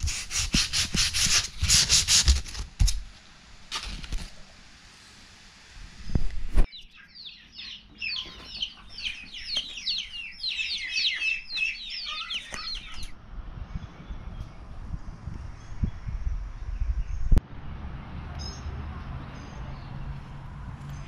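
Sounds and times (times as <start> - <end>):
birds chirping: 6.7 - 17.4.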